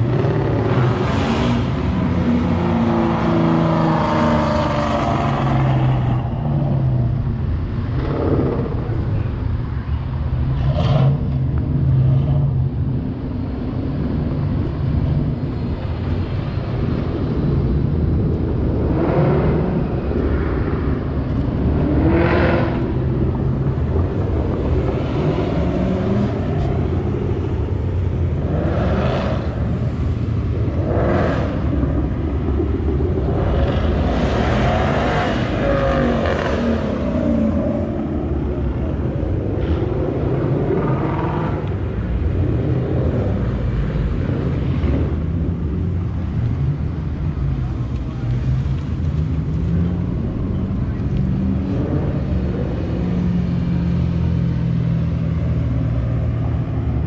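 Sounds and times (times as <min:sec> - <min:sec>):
cars driving past: 0:00.0 - 0:57.0
low engine drone: 0:00.0 - 0:57.0.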